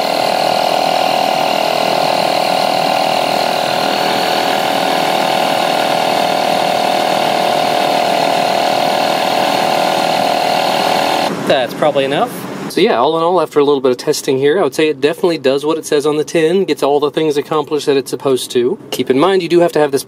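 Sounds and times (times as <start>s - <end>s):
air compressor droning: 0.0s - 11.9s
rattling hiss of air: 0.0s - 12.8s.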